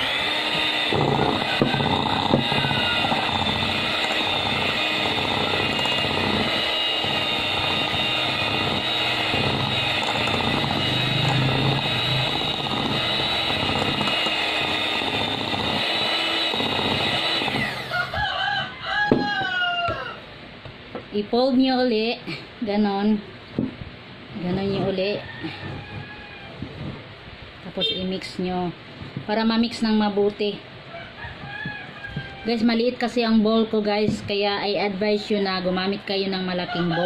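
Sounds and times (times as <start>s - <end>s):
electric mixer running: 0.0s - 18.2s.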